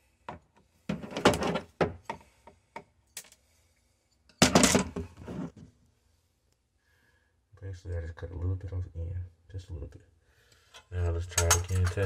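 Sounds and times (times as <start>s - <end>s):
rustling and scraping: 4.4s - 5.8s.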